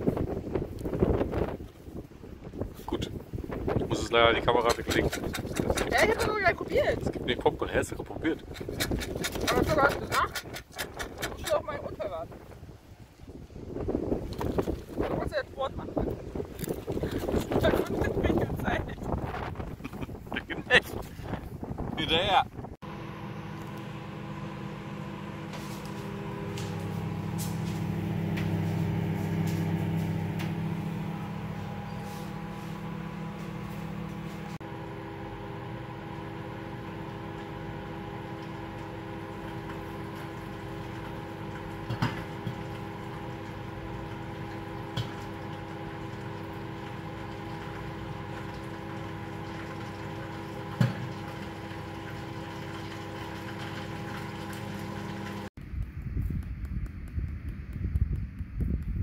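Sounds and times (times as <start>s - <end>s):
microwave oven humming: 22.8s - 55.5s.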